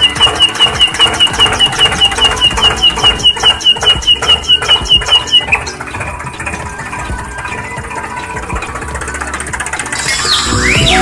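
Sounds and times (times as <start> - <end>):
high chirps: 0.0 - 6.0, 9.9 - 11.0
small engine running: 0.0 - 11.0.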